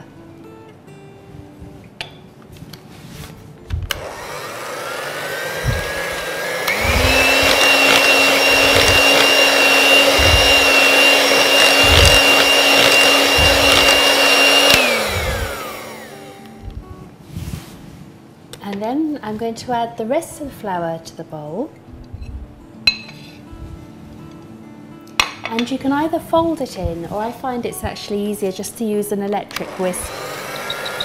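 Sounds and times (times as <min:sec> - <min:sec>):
electric hand mixer whirring: 0:03.9 - 0:16.8, 0:29.5 - 0:31.0.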